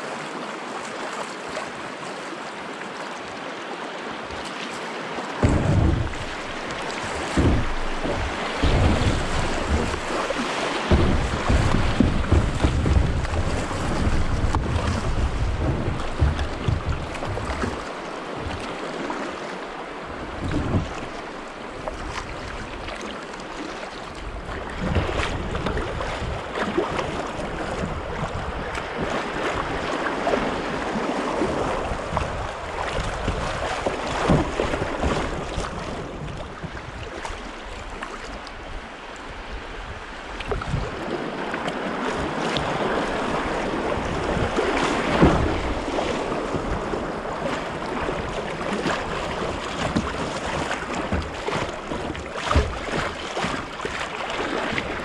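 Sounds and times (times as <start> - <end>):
river water rushing and splashing: 0.0 - 55.0
sharp splashes: 5.4 - 19.2
wind rumbling on microphone: 5.4 - 19.2, 19.8 - 23.0, 24.1 - 55.0.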